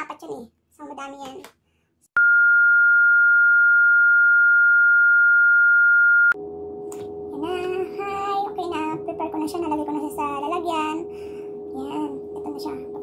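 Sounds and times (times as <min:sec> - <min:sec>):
steady test tone beep: 0:02.2 - 0:06.4.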